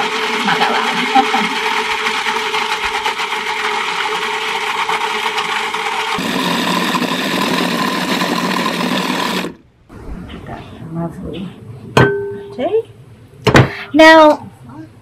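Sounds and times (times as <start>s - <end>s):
food processor running: 0.0s - 9.6s.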